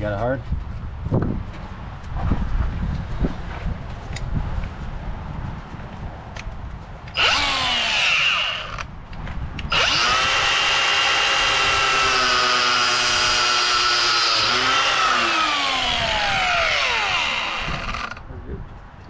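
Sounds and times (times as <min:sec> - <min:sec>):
angle grinder cutting hose: 0:07.1 - 0:08.9, 0:09.6 - 0:18.2.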